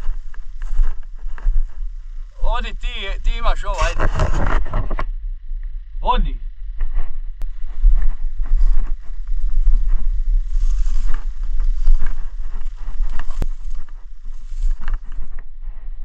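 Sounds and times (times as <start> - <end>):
low rumble on microphone: 0.0 - 16.0
undergrowth rustling and snapping: 8.4 - 15.4.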